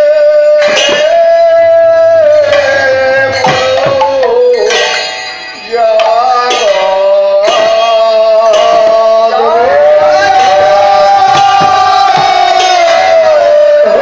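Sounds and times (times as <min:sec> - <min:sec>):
loud held high vocal notes: 0:00.0 - 0:14.0
clay drums struck: 0:02.4 - 0:05.2, 0:09.9 - 0:13.4.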